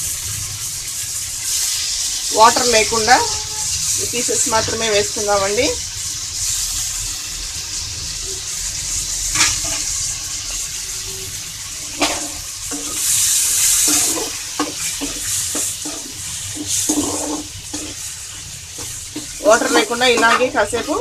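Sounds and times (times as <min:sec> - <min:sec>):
meat sizzling in hot oil: 0:00.0 - 0:21.0
ladle scraping against pan: 0:12.0 - 0:18.1.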